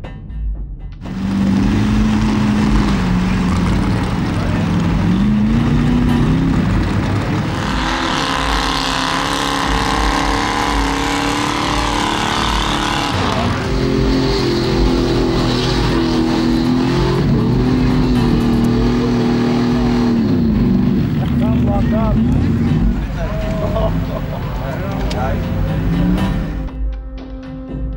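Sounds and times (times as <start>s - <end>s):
truck engines revving in mud: 1.0s - 26.7s.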